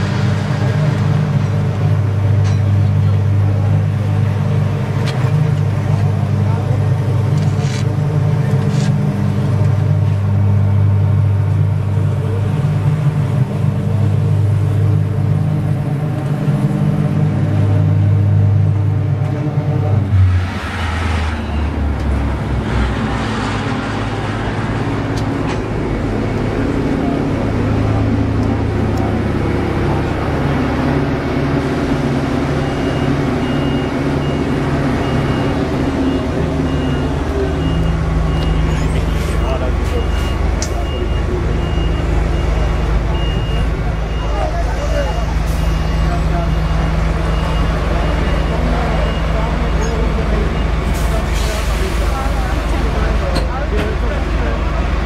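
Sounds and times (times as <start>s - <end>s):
diesel engines running: 0.0s - 55.0s
reversing beeper: 17.1s - 23.1s, 29.6s - 53.2s.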